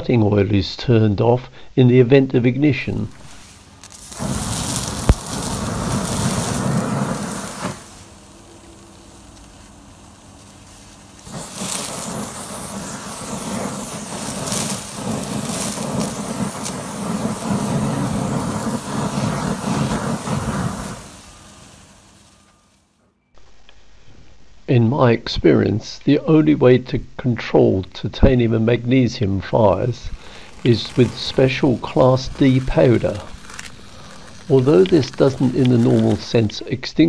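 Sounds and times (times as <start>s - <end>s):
steady burning: 2.9s - 23.0s, 28.3s - 36.7s
flames flaring up loudly: 3.0s - 23.0s, 29.7s - 36.5s
aerosol can spraying: 3.2s - 22.5s.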